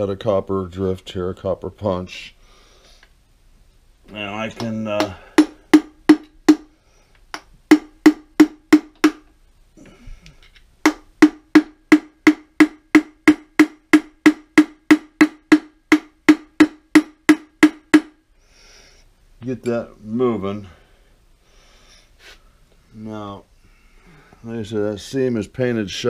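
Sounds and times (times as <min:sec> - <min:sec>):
hammer striking metal ringing: 0:07.7 - 0:09.3, 0:10.9 - 0:18.2.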